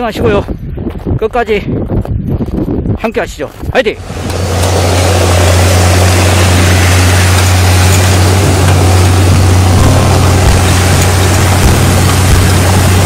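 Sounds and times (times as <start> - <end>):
diesel engine running: 4.0 - 13.0.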